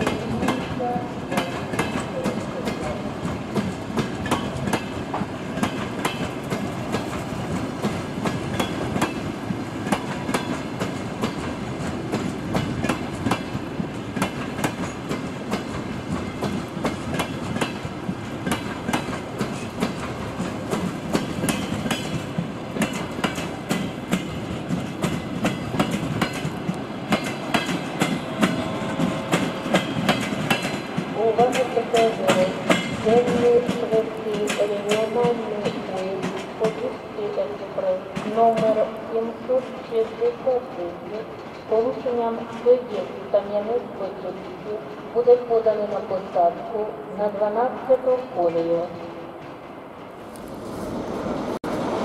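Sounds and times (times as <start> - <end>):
train wheels clicking over rail joints: 0.0 - 36.9, 41.2 - 43.0.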